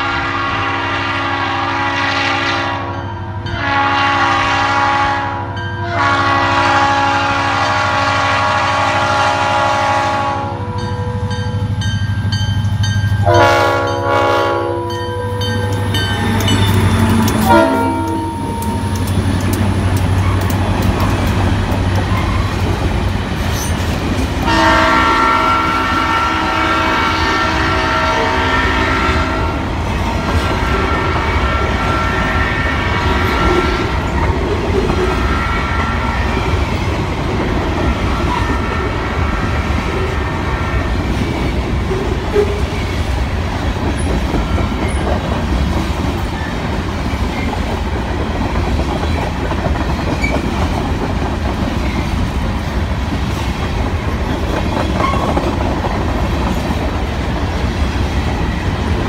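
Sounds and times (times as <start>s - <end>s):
locomotive horn blasts: 0.0s - 11.3s, 13.2s - 15.8s, 16.9s - 19.0s, 24.4s - 29.7s, 30.3s - 34.2s, 35.1s - 36.2s, 38.0s - 41.0s
freight train rolling past: 0.0s - 59.0s
wheels clattering on rail joints: 15.4s - 24.5s, 41.1s - 59.0s.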